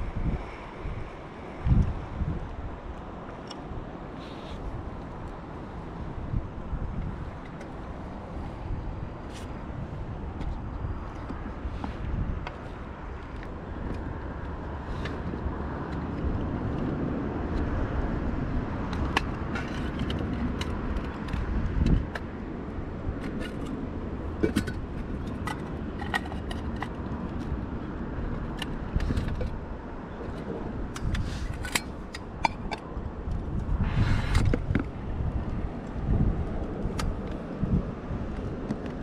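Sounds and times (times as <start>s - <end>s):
wind rumble on microphone: 0.0s - 39.0s
camping gear clicks and knocks: 6.9s - 8.4s, 10.3s - 22.4s, 23.0s - 37.6s, 38.2s - 39.0s.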